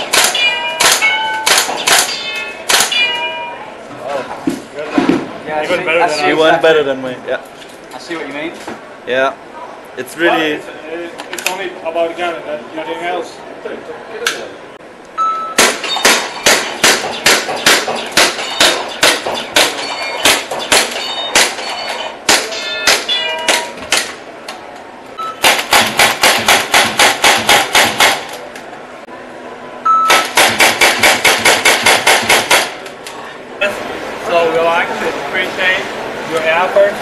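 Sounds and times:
airsoft gun shots: 0:00.0 - 0:03.1, 0:15.6 - 0:24.2, 0:25.4 - 0:28.3, 0:30.1 - 0:32.8.

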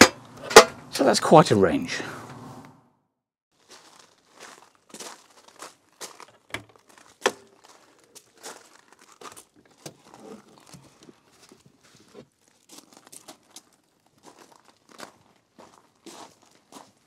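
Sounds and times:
footsteps crunching on gravel: 0:03.5 - 0:17.0
rustles and clicks of seat: 0:06.2 - 0:07.9, 0:09.1 - 0:12.3.

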